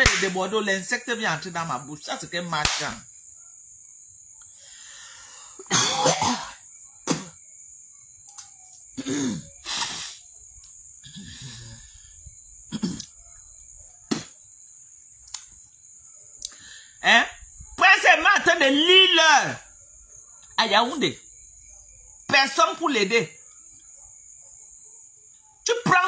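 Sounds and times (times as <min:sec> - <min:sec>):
woman coughing: 0:05.6 - 0:07.3, 0:09.0 - 0:09.5, 0:12.7 - 0:13.1.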